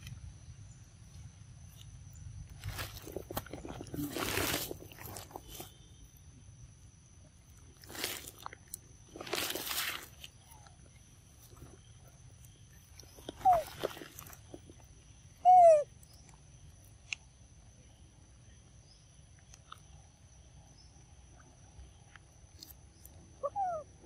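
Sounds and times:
rustling: 0:02.4 - 0:05.9, 0:07.6 - 0:10.7
young monkey squealing calls: 0:13.3 - 0:14.0, 0:15.4 - 0:15.9, 0:23.4 - 0:23.9.

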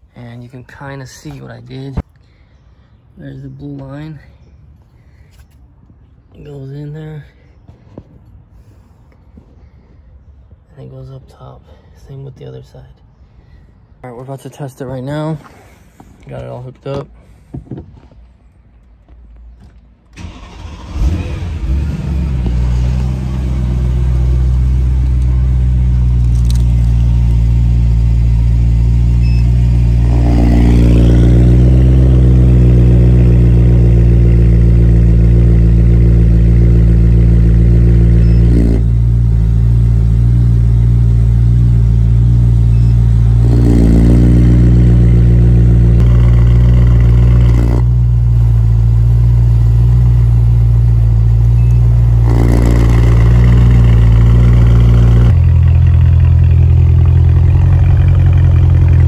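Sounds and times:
car engine idling: 0:20.2 - 0:59.0.

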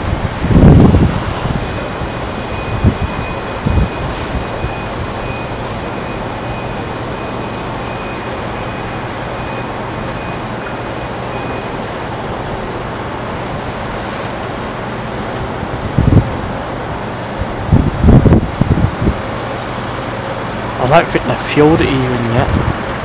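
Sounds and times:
wind gust on microphone: 0:00.0 - 0:06.7, 0:13.2 - 0:20.8, 0:21.7 - 0:23.0
airport apron rushing din: 0:20.7 - 0:23.0.

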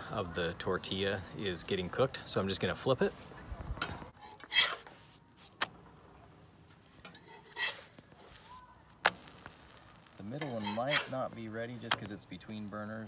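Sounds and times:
spatula scraping a griddle: 0:04.1 - 0:05.1, 0:07.0 - 0:08.5, 0:09.2 - 0:12.1.

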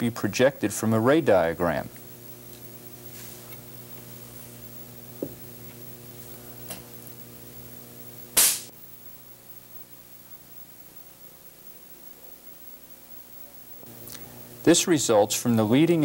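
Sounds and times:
mains hum: 0:00.0 - 0:16.0
sharp spark snap: 0:08.3 - 0:08.7.

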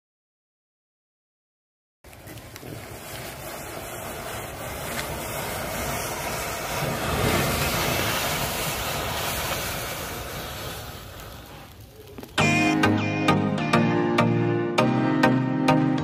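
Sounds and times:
faint crackles: 0:02.0 - 0:12.6
rushing fire: 0:02.0 - 0:12.9.

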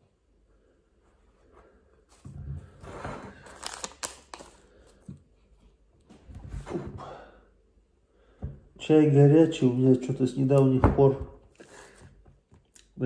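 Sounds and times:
tea bag rustling: 0:03.3 - 0:04.8.

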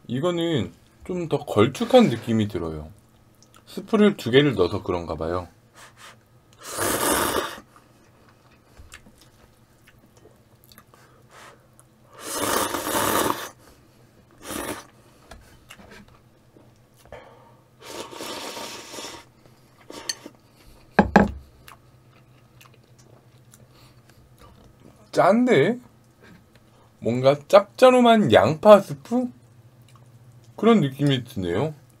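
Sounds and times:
person slurping noodles: 0:06.6 - 0:07.7, 0:12.1 - 0:13.6, 0:14.4 - 0:14.9, 0:17.8 - 0:19.3.

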